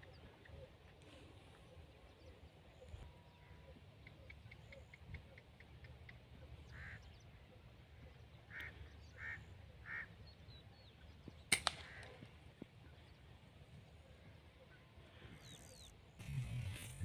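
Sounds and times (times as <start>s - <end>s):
birds calling: 0.0s - 17.0s
air rifle shot: 11.5s - 12.0s.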